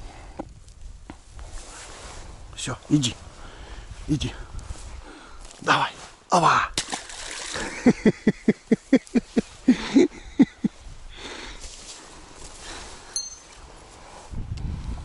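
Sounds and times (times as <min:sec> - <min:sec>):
footsteps on low vegetation: 0:10.7 - 0:15.0
light metallic clink: 0:13.1 - 0:13.6.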